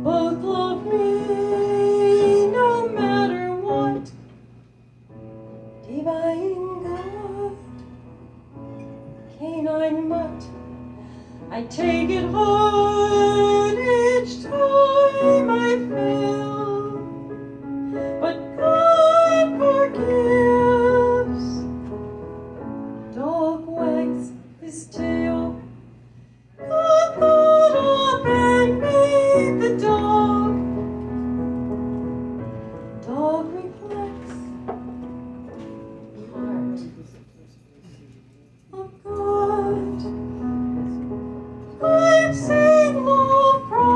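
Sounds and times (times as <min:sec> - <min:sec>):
woman singing: 0:00.0 - 0:04.2, 0:05.8 - 0:07.8, 0:09.3 - 0:10.6, 0:11.5 - 0:17.2, 0:18.1 - 0:21.7, 0:23.2 - 0:25.7, 0:26.6 - 0:30.9, 0:33.0 - 0:34.7, 0:38.8 - 0:40.4, 0:41.8 - 0:43.9
electric keyboard piano: 0:00.0 - 0:37.2, 0:39.0 - 0:43.9.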